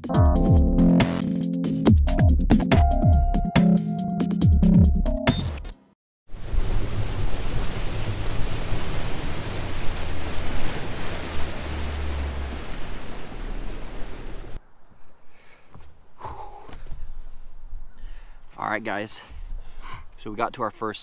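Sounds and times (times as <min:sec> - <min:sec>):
water rushing past hull: 0:06.3 - 0:14.6
wind buffeting microphone: 0:06.4 - 0:14.6.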